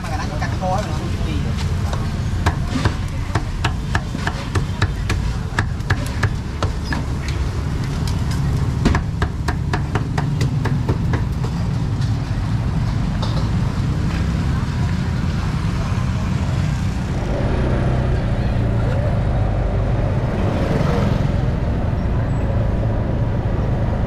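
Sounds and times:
low rumble of street traffic: 0.0 - 24.0
cleaver chopping meat on wood: 8.8 - 11.6.

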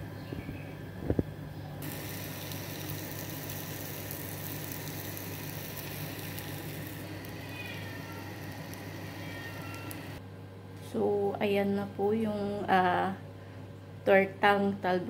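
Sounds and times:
oil sizzling in a frying pan: 1.8 - 10.2.

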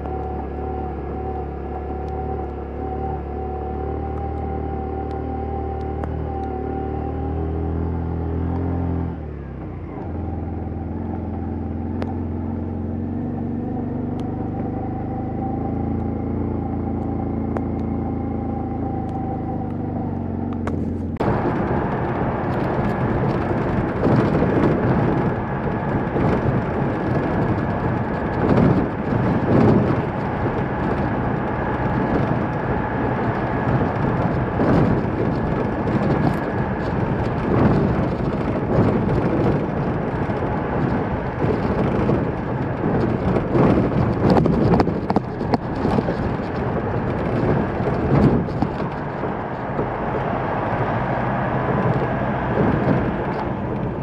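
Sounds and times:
road noise in tunnel: 0.0 - 54.0
motorcycle engine running: 10.1 - 50.2.

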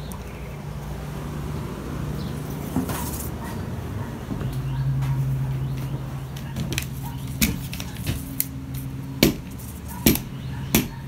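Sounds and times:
footsteps on hollow plywood floor: 4.0 - 8.4.

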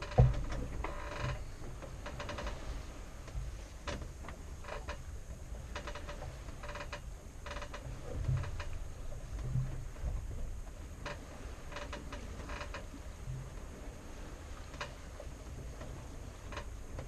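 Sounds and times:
wind and water rumble: 0.0 - 17.0.

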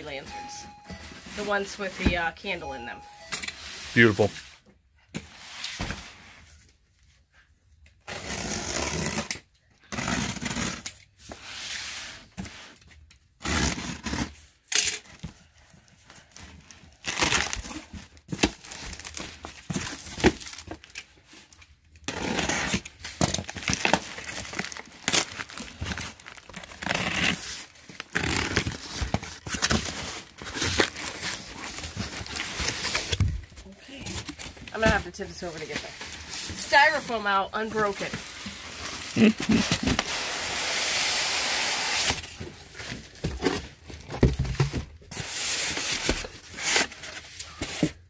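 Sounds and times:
tape tearing: 8.0 - 11.0, 13.4 - 14.9, 17.0 - 21.1, 22.0 - 33.3, 37.8 - 43.7, 45.2 - 47.8.

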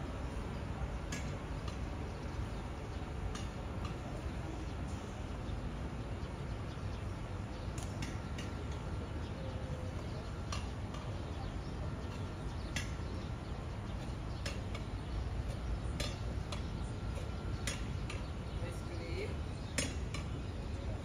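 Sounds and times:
low rumble of street: 0.0 - 21.0.

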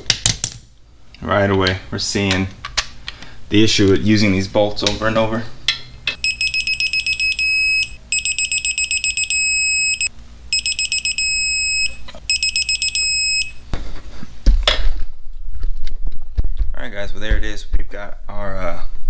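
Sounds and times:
torque wrench beeping: 6.2 - 13.6.

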